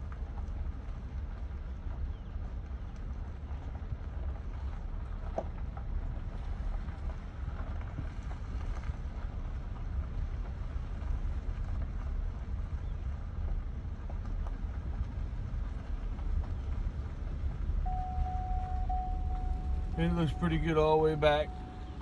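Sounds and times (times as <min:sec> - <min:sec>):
vehicle rumble: 0:00.0 - 0:22.0.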